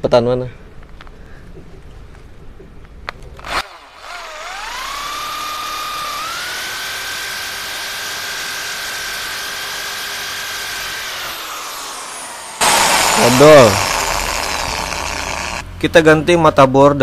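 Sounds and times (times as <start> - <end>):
power drill whining: 3.4 - 15.6.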